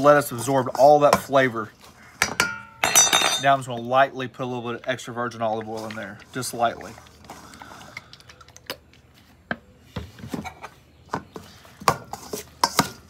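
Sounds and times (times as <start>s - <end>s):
metal utensil tapping metal bowl: 2.2s - 3.5s.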